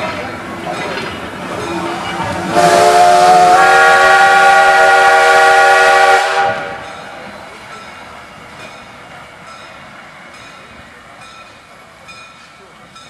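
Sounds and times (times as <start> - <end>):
rush of steam: 0.0 - 13.0
train coaches rumbling past: 0.0 - 13.0
steam locomotive whistle: 2.5 - 6.9.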